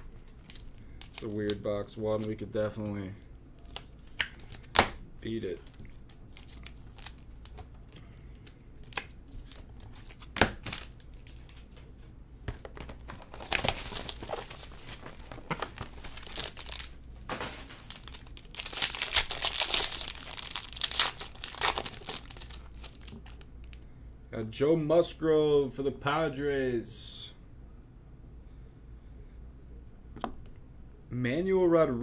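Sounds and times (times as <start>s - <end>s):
plastic wrapping crinkling and tearing: 0.1s - 2.9s, 3.6s - 11.8s, 12.8s - 23.8s.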